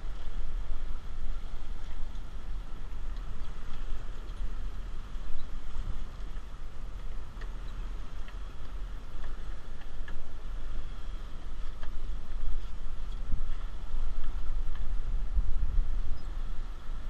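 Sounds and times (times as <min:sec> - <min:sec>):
boat engine running: 0:00.0 - 0:17.0
water washing in wake: 0:00.0 - 0:17.0
faint ticks: 0:01.7 - 0:15.0.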